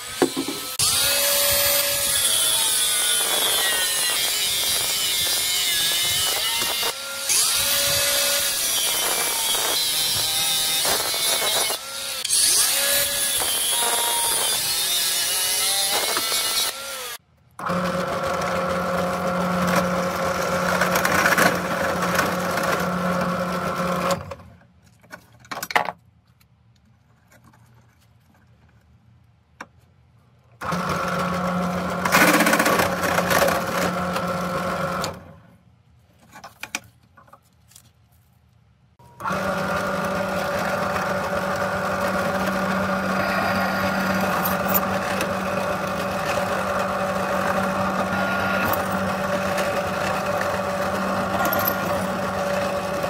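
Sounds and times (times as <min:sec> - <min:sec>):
angle grinder cutting steel: 0:00.0 - 0:17.2, 0:39.0 - 0:53.0
drill press humming: 0:39.0 - 0:53.0.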